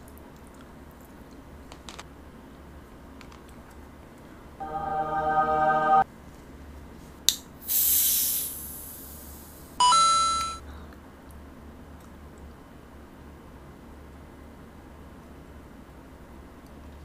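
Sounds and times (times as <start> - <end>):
carbonation fizzing hiss: 7.6 - 9.7.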